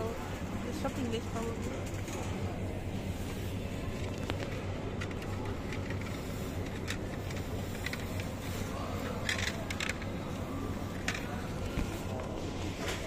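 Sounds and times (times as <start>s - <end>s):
shopping cart rattling: 0.0s - 13.0s
supermarket low hum: 0.0s - 13.0s.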